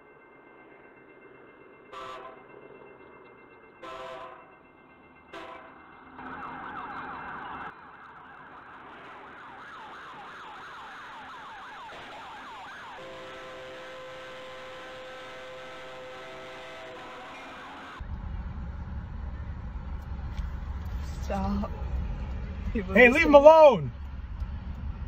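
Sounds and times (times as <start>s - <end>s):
locomotive horn: 1.9s - 2.5s, 3.8s - 4.6s, 5.3s - 5.9s, 12.8s - 18.0s
short horn blasts: 2.0s - 2.4s, 3.8s - 4.5s, 5.4s - 5.7s, 13.0s - 18.0s
police siren yelping: 5.3s - 18.0s.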